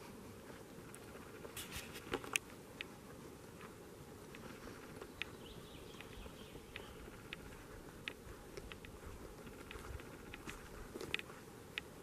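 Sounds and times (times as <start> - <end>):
faint steady hiss: 0.0 - 12.0
sharp clicks: 5.2 - 11.9.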